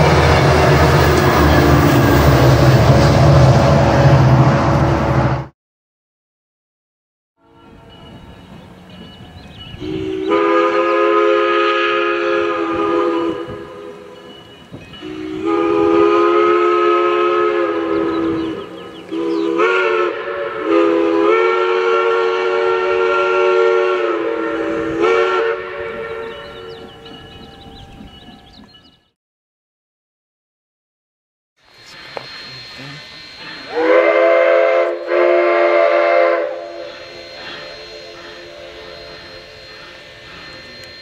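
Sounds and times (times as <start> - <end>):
locomotive air horn blasts: 0.0 - 2.8, 9.8 - 14.3, 15.0 - 26.8, 31.7 - 41.0
train rumble: 0.0 - 5.5, 7.5 - 29.1, 31.6 - 41.0.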